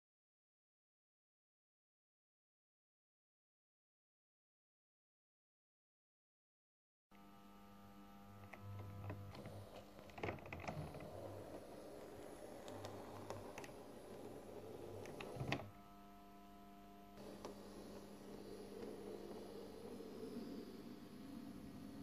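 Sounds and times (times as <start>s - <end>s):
low hum: 7.2s - 22.0s
model train motor whirring: 10.6s - 15.6s, 17.2s - 20.8s.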